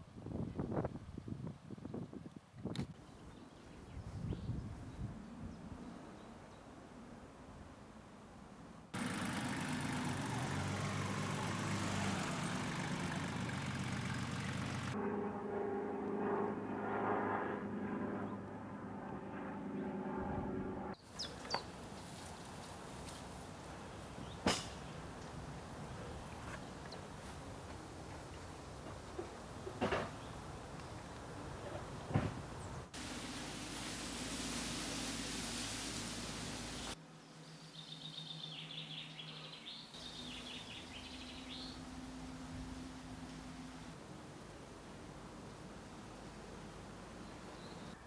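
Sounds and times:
engine drone: 0:08.9 - 0:21.6, 0:32.9 - 0:37.0, 0:40.0 - 0:46.0
low hum: 0:09.0 - 0:21.0, 0:40.0 - 0:45.3
small birds twittering: 0:21.0 - 0:22.1, 0:37.2 - 0:41.9
steady hiss: 0:32.8 - 0:37.0.

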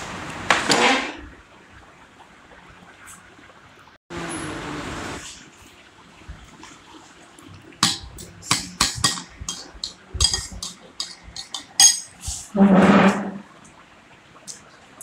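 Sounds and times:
dishes and cutlery clinking: 0:07.8 - 0:13.3.

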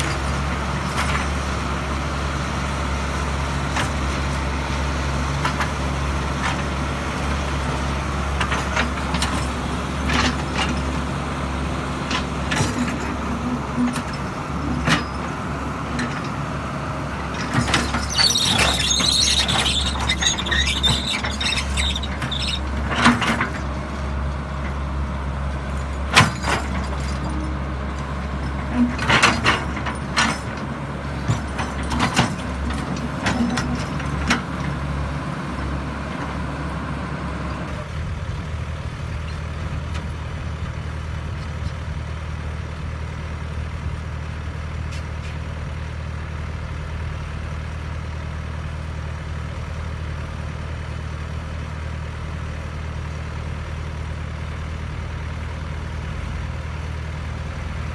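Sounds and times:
excavator diesel engine running: 0:00.0 - 0:57.9
excavator bucket knocks and clanks: 0:31.2 - 0:34.5.

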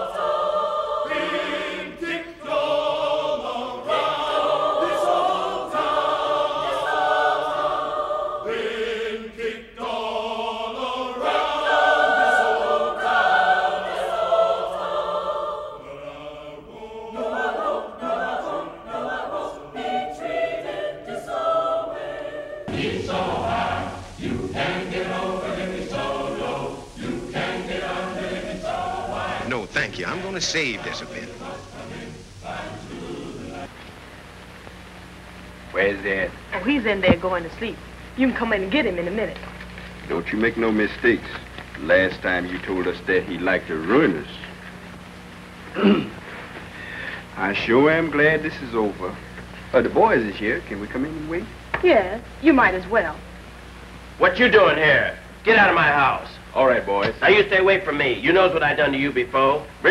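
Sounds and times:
mixed choir singing: 0:00.0 - 0:33.7, 0:55.5 - 0:59.9.

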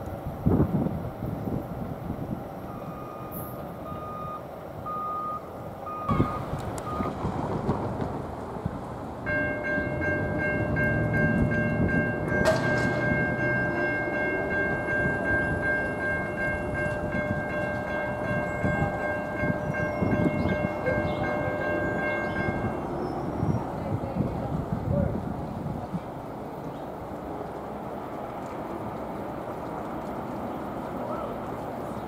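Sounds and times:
electronic crossing bell ringing: 0:09.3 - 0:22.9
sharp knock: 0:12.4 - 0:13.6.

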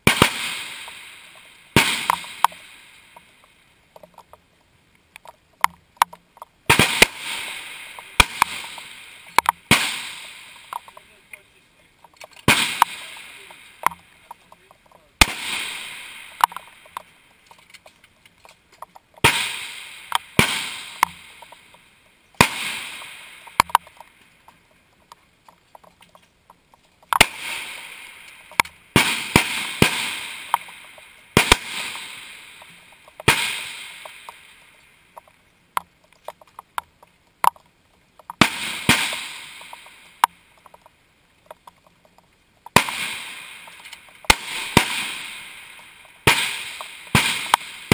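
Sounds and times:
rifle shots with echo: 0:00.0 - 0:03.2, 0:06.7 - 0:11.1, 0:12.3 - 0:14.5, 0:15.2 - 0:17.0, 0:19.2 - 0:21.6, 0:22.4 - 0:24.0, 0:27.2 - 0:34.6, 0:38.4 - 0:40.3, 0:42.7 - 0:47.9
small clicks: 0:02.1 - 0:06.7, 0:10.5 - 0:15.1, 0:16.3 - 0:19.3, 0:23.4 - 0:28.8, 0:34.0 - 0:38.4, 0:39.1 - 0:42.8.

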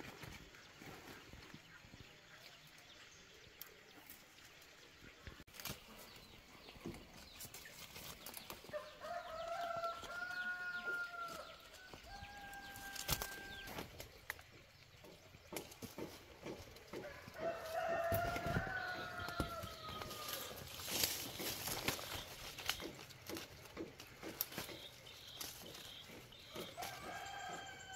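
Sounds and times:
leaves rustling: 0:00.0 - 0:27.9
twigs clicking and snapping: 0:05.5 - 0:27.8
rooster crowing: 0:08.8 - 0:13.7, 0:17.0 - 0:20.6, 0:26.8 - 0:27.9.

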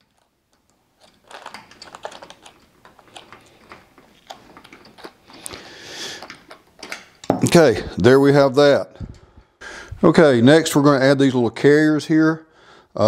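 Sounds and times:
screwdriver turning small screws: 0:00.0 - 0:05.6.

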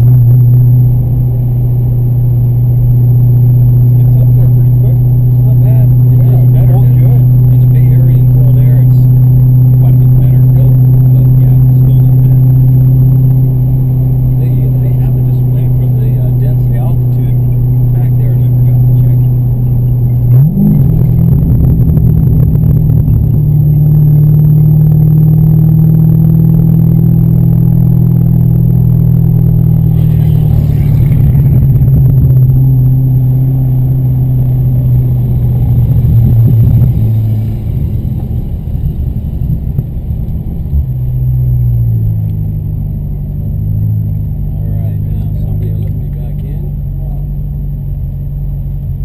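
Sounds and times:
car engine running at high speed: 0:00.0 - 0:49.0.

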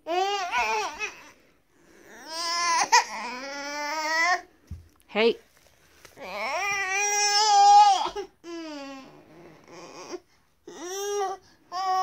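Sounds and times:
baby crying: 0:00.0 - 0:01.4, 0:02.0 - 0:04.5, 0:06.2 - 0:12.0.

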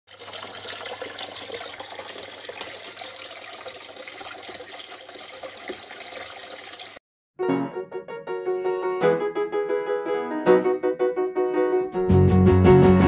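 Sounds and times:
water pouring and splashing: 0:00.0 - 0:07.0.

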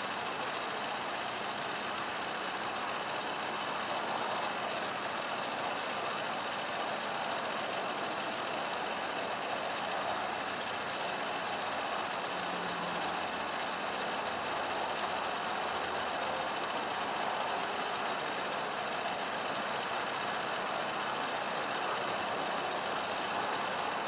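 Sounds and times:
diesel engine running: 0:00.0 - 0:24.0.

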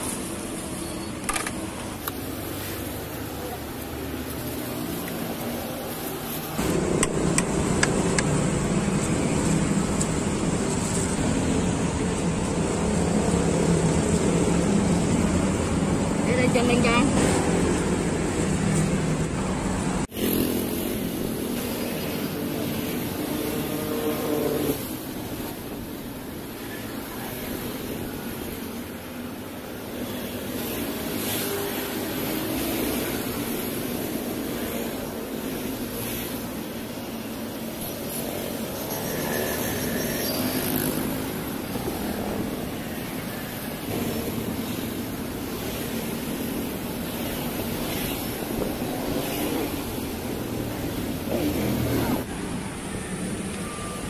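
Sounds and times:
motorbikes and cars passing: 0:00.0 - 0:54.0
passing motor traffic drone: 0:01.6 - 0:26.0.

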